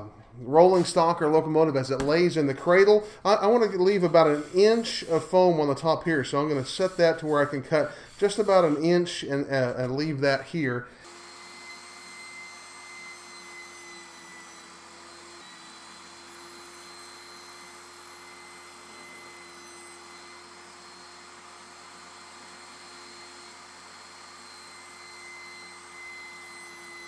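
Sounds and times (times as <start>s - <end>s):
table saw whining: 0.0s - 27.0s.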